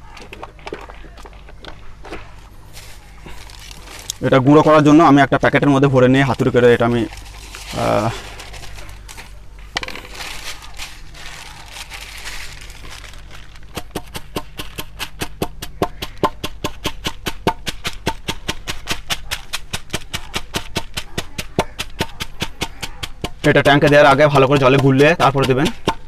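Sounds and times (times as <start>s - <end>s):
plastic packet rustling: 2.6s - 4.9s, 6.7s - 14.0s
hammer tapping on packet on concrete: 13.7s - 26.0s.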